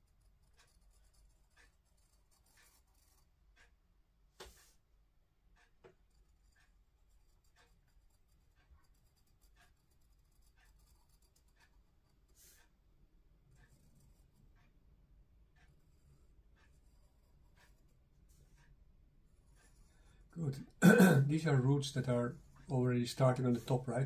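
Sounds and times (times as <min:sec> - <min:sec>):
pencil scratching on paper: 0:00.0 - 0:03.7, 0:05.6 - 0:12.8, 0:13.4 - 0:14.8, 0:15.5 - 0:20.3, 0:21.4 - 0:24.0.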